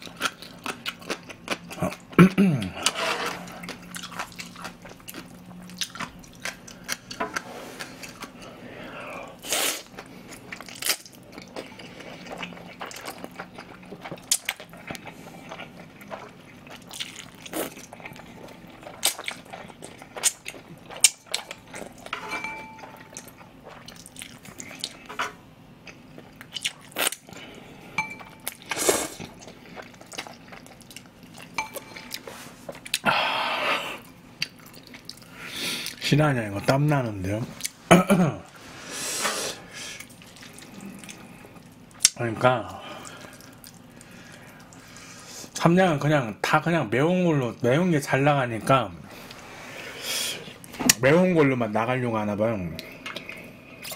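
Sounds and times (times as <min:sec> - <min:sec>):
wet chewing: 0:00.0 - 0:08.5, 0:09.7 - 0:22.1, 0:22.8 - 0:25.2, 0:25.8 - 0:27.4, 0:28.2 - 0:33.1, 0:40.0 - 0:42.2, 0:42.9 - 0:45.0
slurping noodles: 0:02.7 - 0:03.8.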